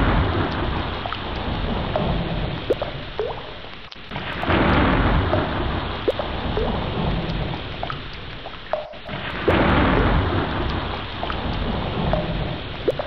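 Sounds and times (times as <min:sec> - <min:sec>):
low rumble of thunder: 0:00.0 - 0:08.4, 0:09.0 - 0:13.0
steady heavy rain: 0:00.0 - 0:13.0
drops plinking into water: 0:02.7 - 0:03.4, 0:05.3 - 0:06.8, 0:08.7 - 0:09.6, 0:12.1 - 0:13.0.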